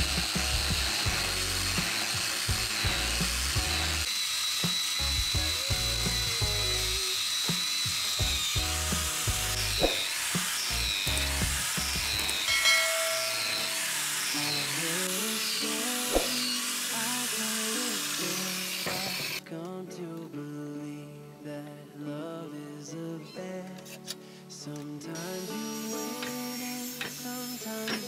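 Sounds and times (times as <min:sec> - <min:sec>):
background music: 0:00.0 - 0:04.1, 0:05.0 - 0:07.0, 0:07.7 - 0:28.0
angle grinder sanding wood: 0:00.0 - 0:19.4, 0:25.3 - 0:28.0.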